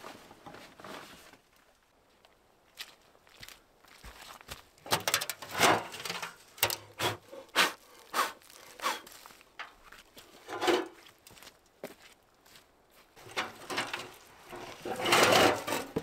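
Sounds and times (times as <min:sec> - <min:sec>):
boots stepping on wet muddy ground: 0:02.1 - 0:04.9.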